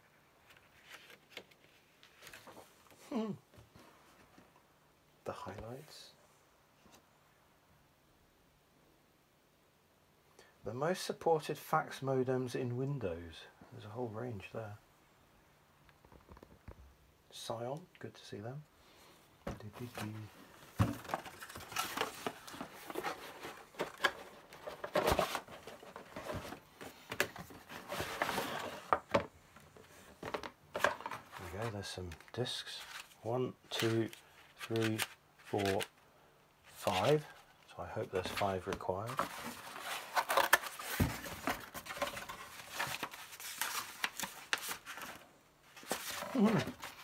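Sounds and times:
floppy disks and paper handled: 19.5 - 35.9
cardboard box rustling and scraping: 19.8 - 29.0.

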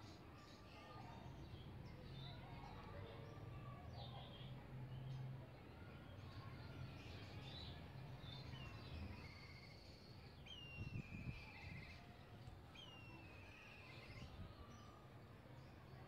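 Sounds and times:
birds whistling with trills: 8.3 - 14.6.

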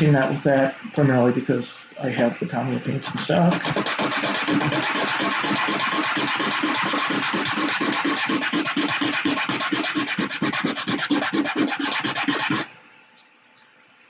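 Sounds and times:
sandpaper rubbing plastic: 3.0 - 13.7.

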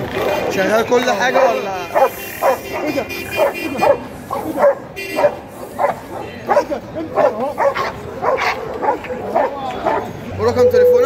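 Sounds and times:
dog barking: 1.2 - 10.1.

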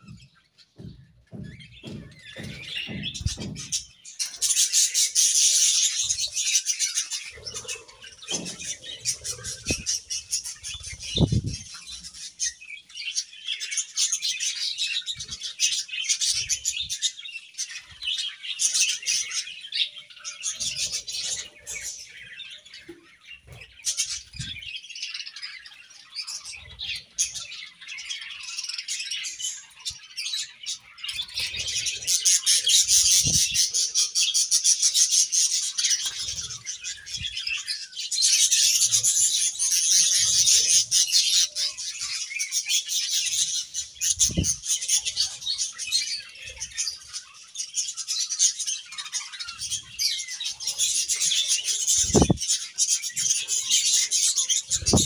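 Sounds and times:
budgerigars chattering: 26.5 - 55.0.

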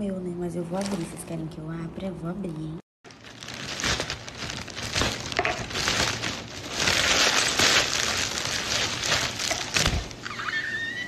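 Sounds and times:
plastic bag crinkling: 3.0 - 10.3.

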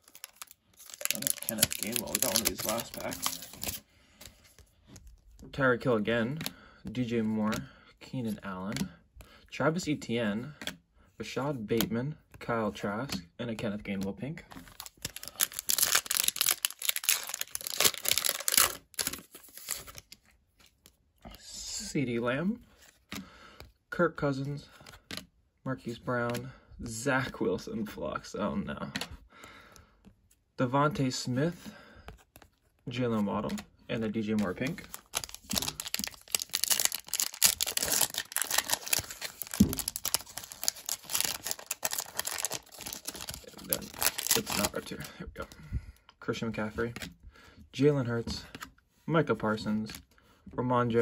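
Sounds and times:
foil wrapper tearing and crinkling: 0.0 - 3.8, 14.7 - 20.0, 34.9 - 44.8.

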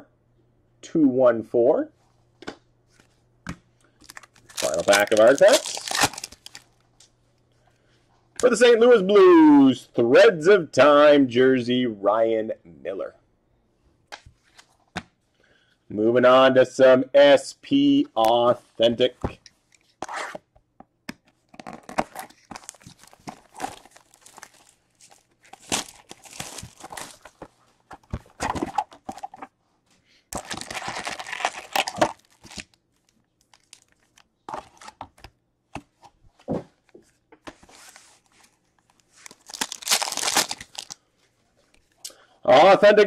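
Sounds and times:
plastic crinkling and tearing: 4.0 - 6.8, 21.6 - 27.4, 30.4 - 34.8, 38.7 - 41.0.

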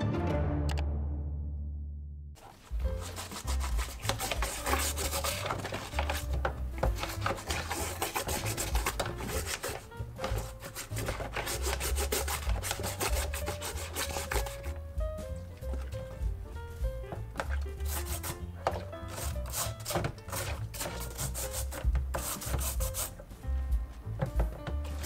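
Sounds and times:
brush scrubbing bamboo basket: 2.4 - 14.8, 15.6 - 23.3.

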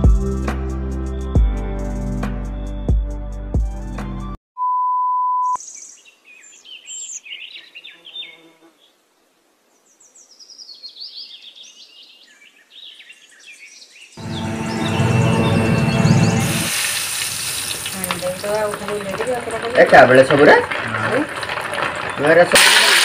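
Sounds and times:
background music: 0.0 - 4.4, 14.2 - 16.8
electronic beep: 4.6 - 5.6
small birds chirping: 5.6 - 9.0, 9.7 - 16.7.

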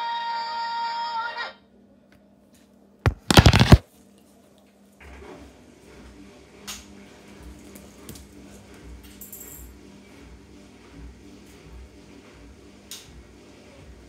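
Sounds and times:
handling rustles: 3.1 - 3.8
loud clatter: 3.1 - 3.8.

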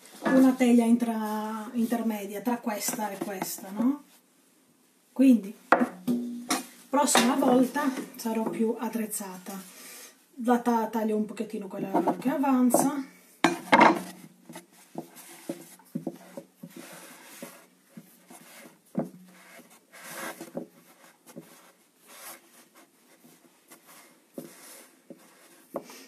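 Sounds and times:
dough rustling and rubbing: 13.6 - 26.0.

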